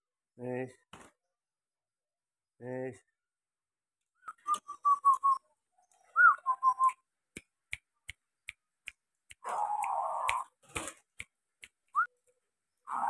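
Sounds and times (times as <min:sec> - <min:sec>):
dove cooing: 0:09.4 - 0:10.5.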